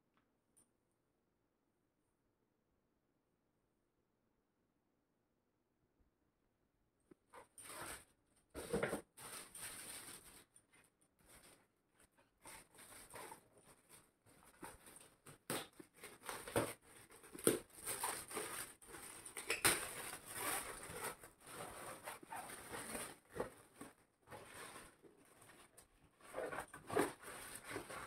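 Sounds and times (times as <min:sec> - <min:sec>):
foil gift wrap crinkling and tearing: 0:07.4 - 0:11.6, 0:12.5 - 0:28.0.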